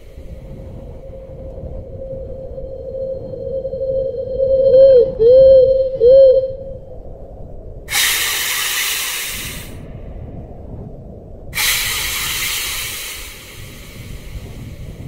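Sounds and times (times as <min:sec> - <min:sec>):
low rumble: 0:00.0 - 0:15.0
long hisses: 0:07.9 - 0:09.9, 0:11.6 - 0:15.0.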